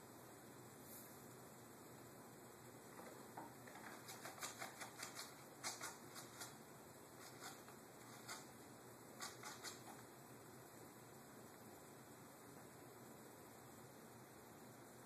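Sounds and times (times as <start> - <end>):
cat claws scratching sisal pole: 3.0 - 6.6, 7.2 - 8.6, 9.2 - 10.0.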